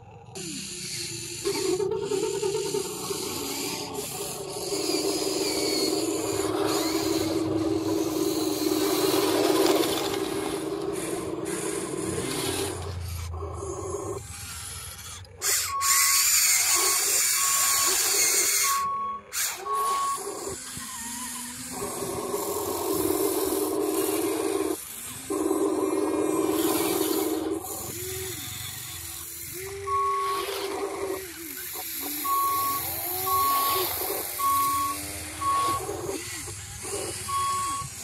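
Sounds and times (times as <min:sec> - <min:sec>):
short high reversing beeps: 0:15.6 - 0:20.4, 0:29.8 - 0:30.5, 0:32.2 - 0:38.0.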